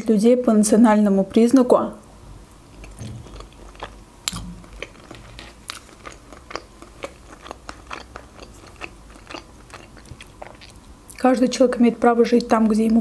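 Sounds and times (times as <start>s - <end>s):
mouth clicks and smacks chewing: 2.7s - 11.2s.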